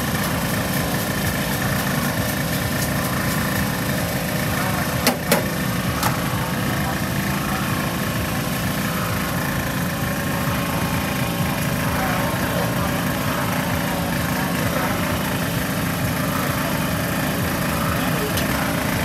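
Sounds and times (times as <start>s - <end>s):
small engine idling: 0.0s - 19.0s.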